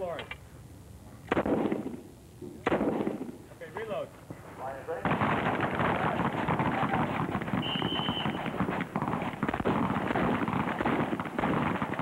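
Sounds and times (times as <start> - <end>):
running footsteps on dirt: 5.6 - 12.0.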